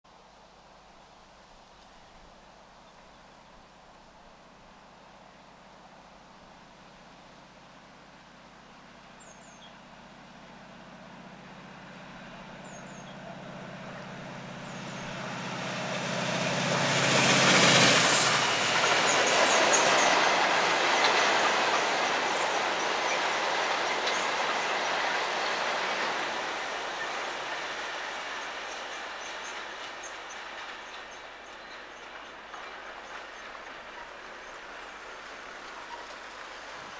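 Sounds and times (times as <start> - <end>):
diesel locomotive engines: 7.4 - 36.9.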